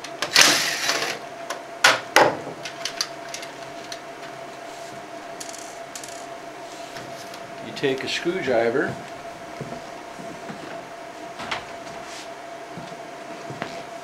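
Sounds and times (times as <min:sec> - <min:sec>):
faint hum: 0:00.0 - 0:14.0.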